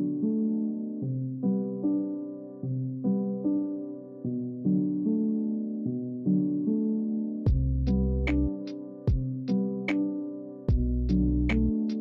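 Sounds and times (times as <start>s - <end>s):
struck music chords: 7.5s - 8.5s, 10.7s - 11.7s.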